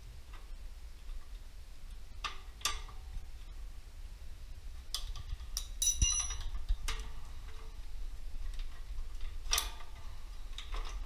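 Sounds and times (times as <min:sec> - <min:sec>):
metal tools clinking on nuts: 0:05.6 - 0:06.5.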